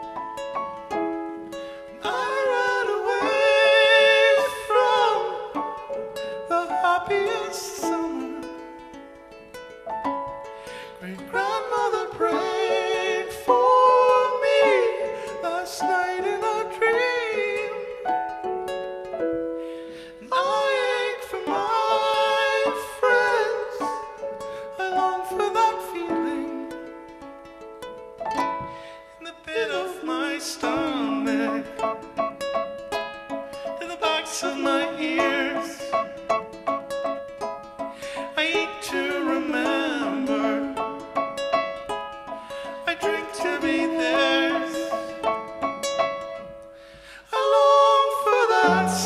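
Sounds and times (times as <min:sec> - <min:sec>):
piano: 0:00.0 - 0:49.0
plucked strings: 0:00.0 - 0:49.0
man singing long held notes: 0:02.0 - 0:05.6, 0:06.4 - 0:08.6, 0:10.8 - 0:18.1, 0:19.9 - 0:26.9, 0:29.1 - 0:32.2, 0:33.7 - 0:36.4, 0:38.1 - 0:41.0, 0:42.6 - 0:45.5, 0:47.2 - 0:49.0.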